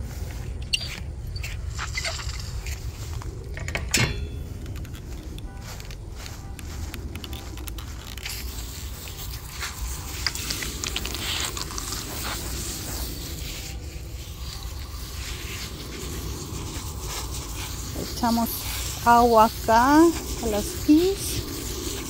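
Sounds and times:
scattered crackles: 0:00.0 - 0:22.0
hose nozzle spraying water: 0:05.8 - 0:22.0.

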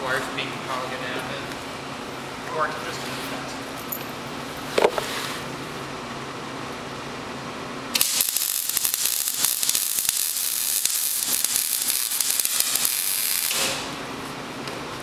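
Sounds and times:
arc welding crackling and sizzling: 0:07.9 - 0:14.4.

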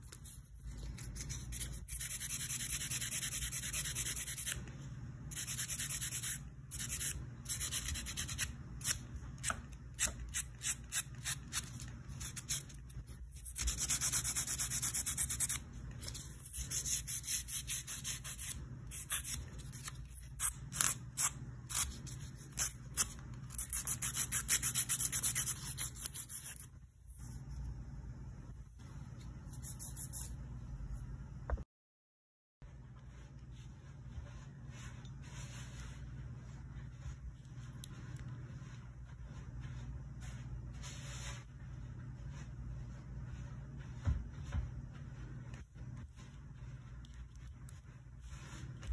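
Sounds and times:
nail file rubbing fingernails: 0:00.0 - 0:04.6, 0:05.3 - 0:27.4, 0:29.5 - 0:30.3.

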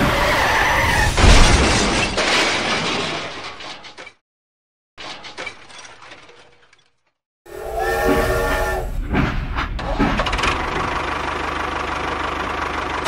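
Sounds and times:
loud crash shattering: 0:00.0 - 0:04.2.

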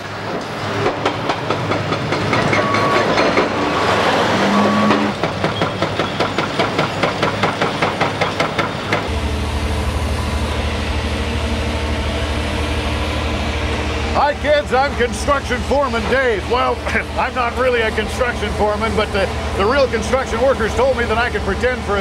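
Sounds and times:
rapid clatter of knocks: 0:00.3 - 0:03.6, 0:05.1 - 0:09.1
machinery grinding din: 0:00.8 - 0:22.0
low diesel engine drone: 0:08.7 - 0:22.0.

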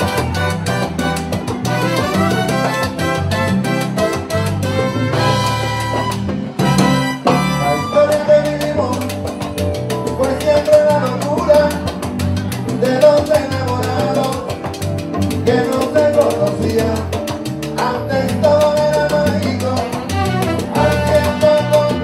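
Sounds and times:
salsa band playing: 0:00.0 - 0:22.0
man singing: 0:07.3 - 0:22.0.

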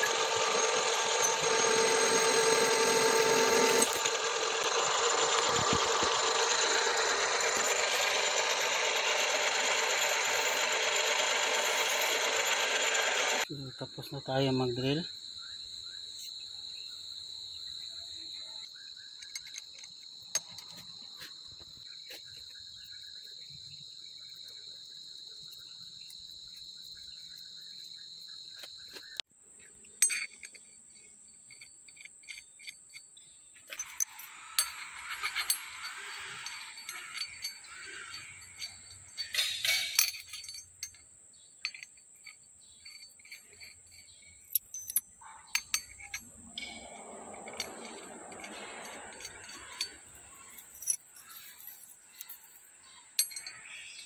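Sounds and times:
metallic clinks of steel parts: 0:00.0 - 0:13.5, 0:19.1 - 0:21.0, 0:29.9 - 0:54.0
rough noise: 0:00.0 - 0:13.5, 0:45.6 - 0:52.4
high-pitched insect chirring: 0:00.0 - 0:29.2, 0:30.5 - 0:54.0.

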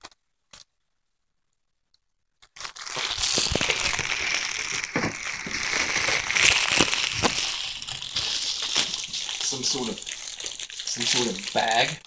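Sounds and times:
bubble wrap crinkling: 0:02.4 - 0:12.0.

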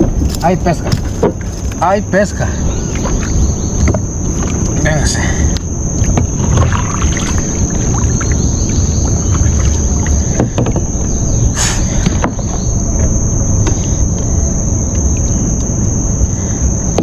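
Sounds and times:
high-pitched insect drone: 0:00.0 - 0:17.0
low rumble: 0:00.0 - 0:17.0
water splashing against kayak: 0:06.0 - 0:11.0.

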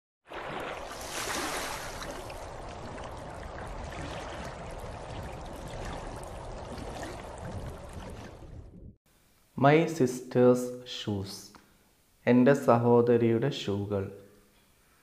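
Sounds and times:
splashing pouring water: 0:00.3 - 0:08.8.

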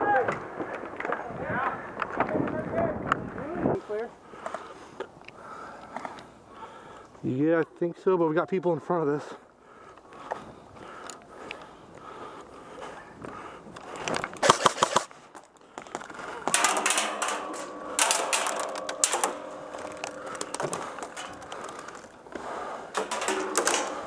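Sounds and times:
paintball markers firing: 0:14.4 - 0:15.1.

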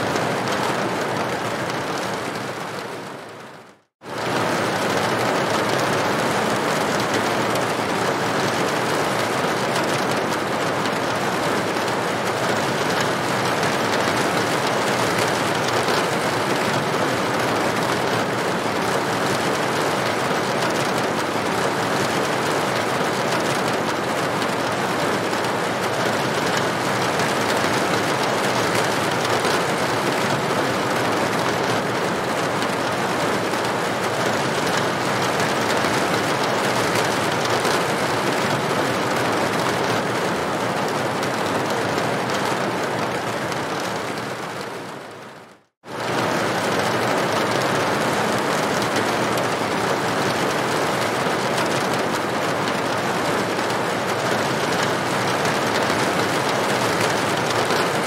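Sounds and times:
rain on a tin roof: 0:00.0 - 0:58.0.

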